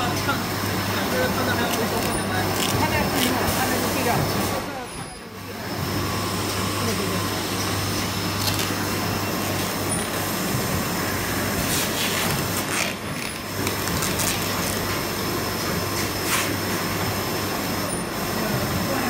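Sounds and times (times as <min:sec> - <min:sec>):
machine humming: 0:00.0 - 0:19.0.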